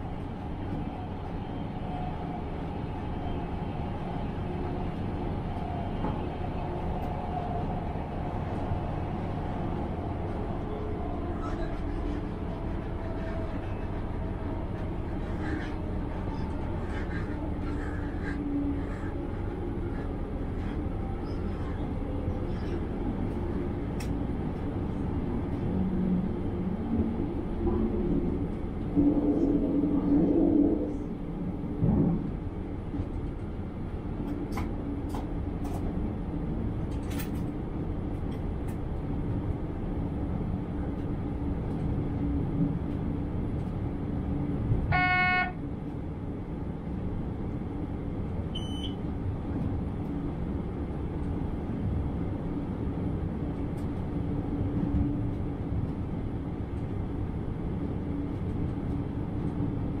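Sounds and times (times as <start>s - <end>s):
train engine drone: 0.0s - 60.0s
wheel and rail noise: 0.0s - 60.0s
train horn blast: 44.9s - 45.6s.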